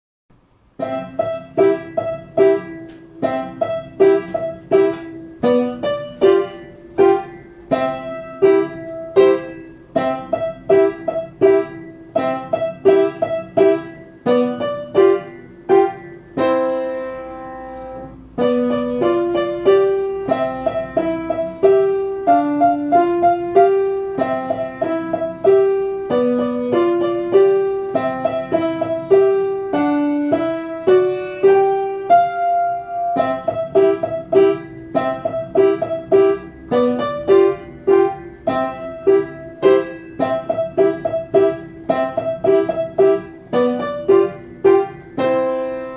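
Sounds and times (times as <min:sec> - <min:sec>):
upright piano playing: 0:00.3 - 0:45.9.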